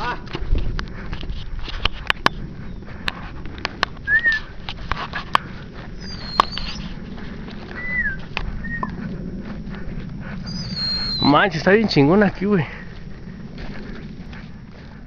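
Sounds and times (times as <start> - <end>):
footsteps crunching through dry brush: 0.0 - 15.0
low rumble: 0.0 - 15.0
bird chirping calls: 6.0 - 7.0, 7.7 - 9.0, 10.4 - 11.6.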